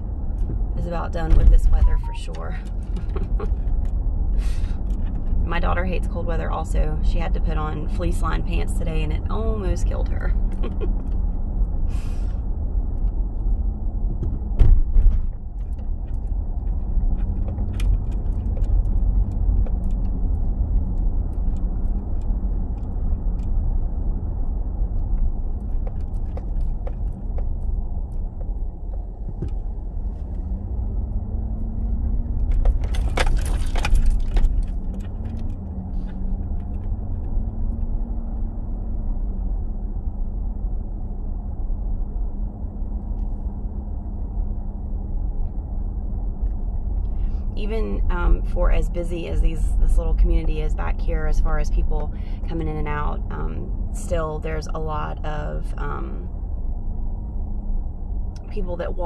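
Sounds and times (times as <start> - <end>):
car engine and road rumble: 0.0 - 59.0
jangling rattle: 32.6 - 35.6.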